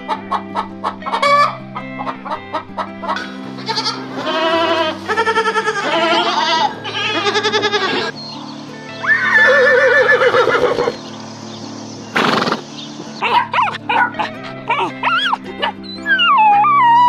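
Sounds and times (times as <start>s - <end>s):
background music: 0.0s - 17.0s
puppies yelping: 3.1s - 8.2s, 8.9s - 11.0s, 12.2s - 17.0s
goats bleating: 3.2s - 8.1s, 9.0s - 11.0s
horse whinnying: 9.0s - 11.0s, 12.2s - 12.6s.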